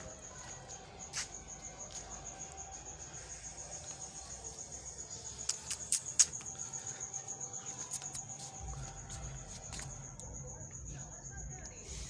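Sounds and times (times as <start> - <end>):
cricket chirping: 0.0 - 12.0
sharp clicks: 5.4 - 6.5.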